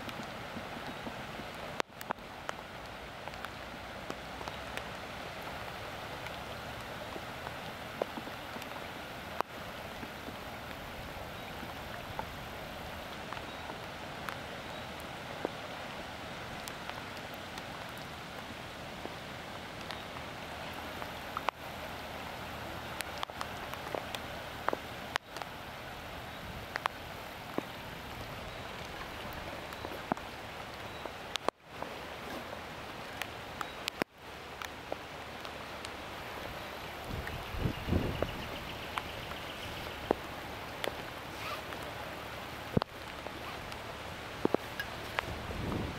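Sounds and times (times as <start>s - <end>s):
floodwater running over road: 0.0s - 45.9s
heavy rain hiss: 0.0s - 45.9s
raindrops tapping: 0.0s - 45.9s.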